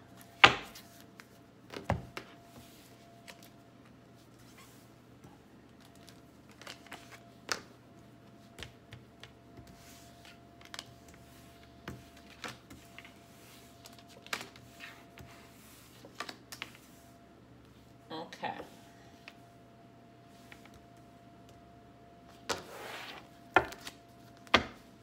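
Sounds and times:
cards laid on a tabletop: 0:08.4 - 0:17.8, 0:20.3 - 0:20.8.

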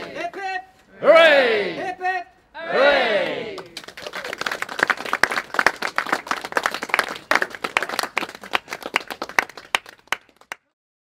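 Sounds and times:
people clapping: 0:02.9 - 0:10.8.

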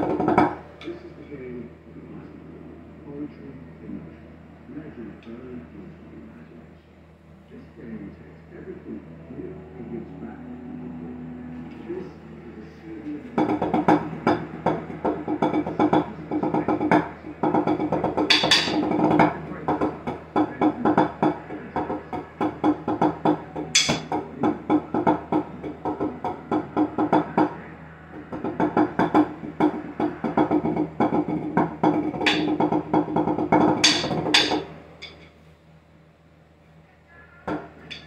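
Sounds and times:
drumsticks on practice pads: 0:13.4 - 0:27.6, 0:28.2 - 0:35.3.

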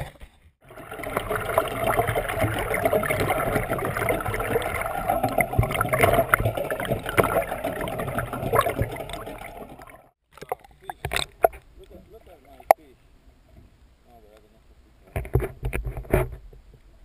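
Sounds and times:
water rushing and gurgling: 0:00.6 - 0:10.2.

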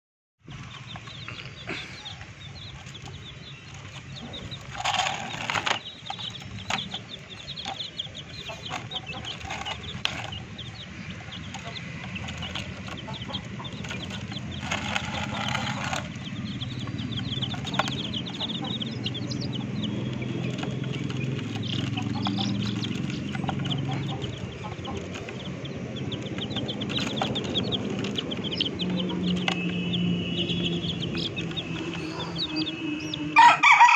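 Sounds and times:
chicks peeping: 0:00.4 - 0:33.9
chickens clucking: 0:00.5 - 0:33.9.

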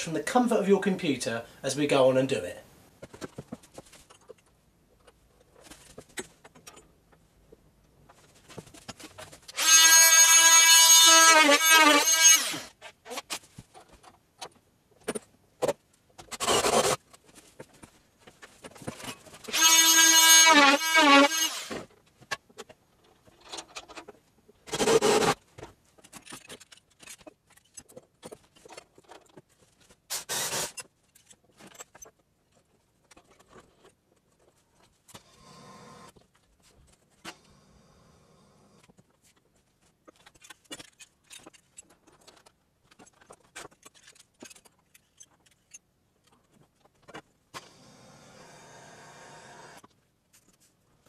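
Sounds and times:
cordless power drill running: 0:09.6 - 0:12.7, 0:19.5 - 0:21.8.

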